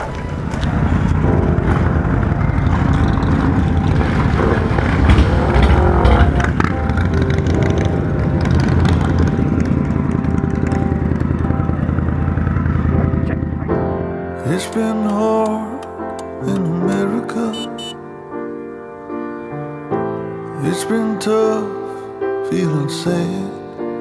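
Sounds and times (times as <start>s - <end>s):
motorcycles engine rumble: 0.0s - 18.2s.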